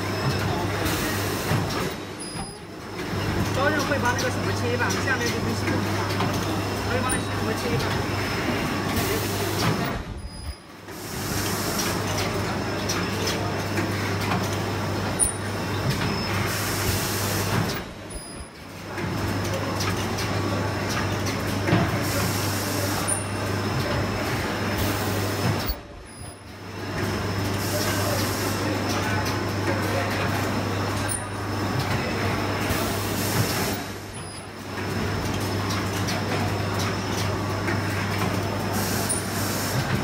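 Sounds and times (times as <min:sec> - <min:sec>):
cutting machine humming and clattering: 0:00.0 - 0:10.1.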